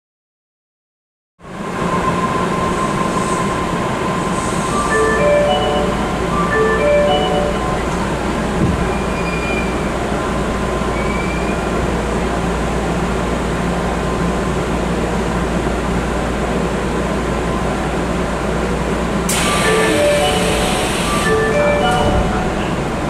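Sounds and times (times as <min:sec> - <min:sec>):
train equipment humming: 0:02.9 - 0:11.0, 0:11.7 - 0:23.0
door-opening chime: 0:04.8 - 0:08.1, 0:19.3 - 0:22.8
hiss of air: 0:19.3 - 0:21.3.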